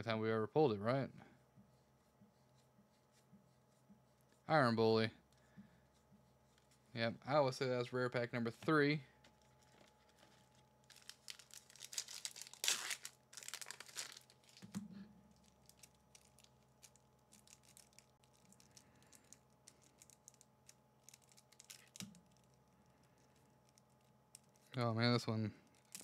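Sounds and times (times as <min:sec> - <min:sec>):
foil wrapper crinkling and tearing: 0:09.4 - 0:24.9, 0:25.6 - 0:26.0.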